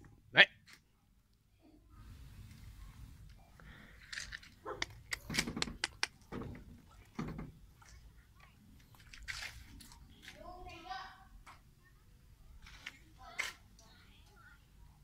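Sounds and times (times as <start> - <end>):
dog barking: 4.6 - 4.9.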